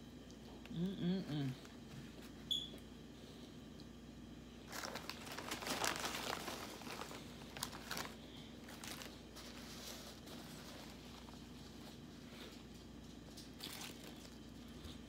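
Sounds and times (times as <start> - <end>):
plastic chip bag crinkling: 4.6 - 12.1, 12.8 - 15.0.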